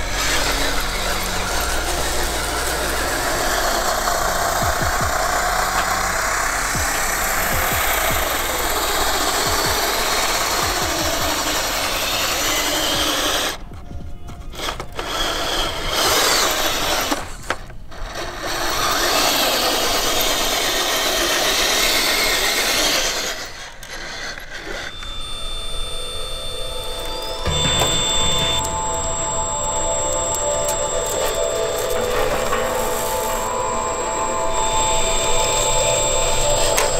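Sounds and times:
small electric motor whirring: 0.0s - 13.6s, 14.4s - 36.9s
tyres grinding on gravel: 0.0s - 23.6s.

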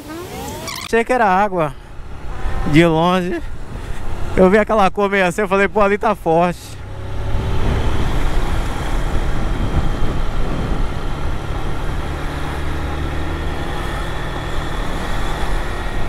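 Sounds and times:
road and wind noise: 0.0s - 16.0s
motorcycle engine cruising: 6.7s - 16.0s.

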